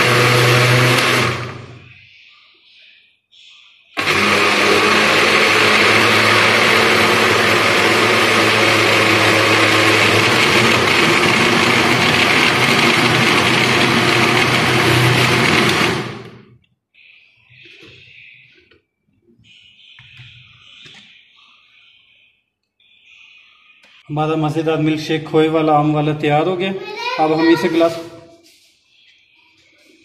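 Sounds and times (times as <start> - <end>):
blender running: 0.0 - 1.7, 4.0 - 16.5.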